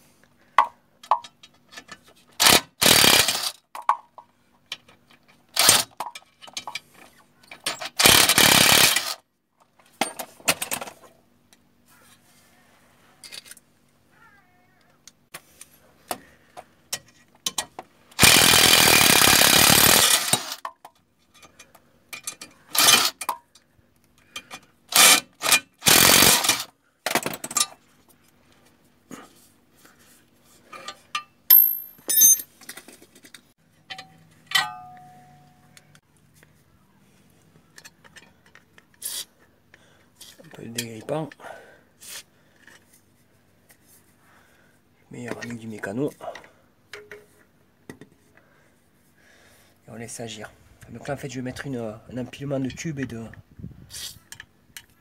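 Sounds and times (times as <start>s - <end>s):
impact wrench bursts: 2.4s - 3.6s, 5.5s - 6.0s, 7.7s - 9.2s, 18.2s - 20.6s, 22.7s - 23.2s, 24.9s - 26.7s.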